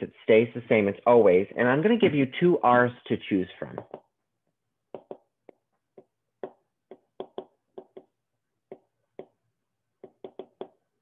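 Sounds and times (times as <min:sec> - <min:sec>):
stylus tapping on tablet: 0:03.8 - 0:04.2, 0:04.9 - 0:10.9.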